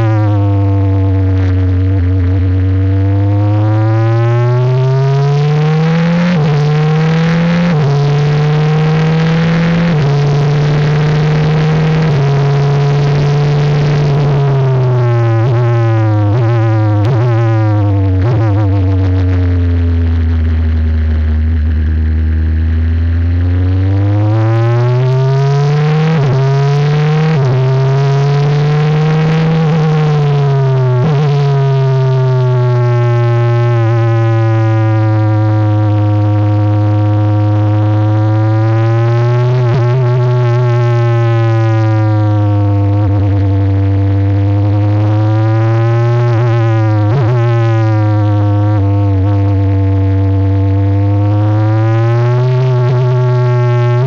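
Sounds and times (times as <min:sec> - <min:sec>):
race car engine: 0:00.0 - 0:54.0.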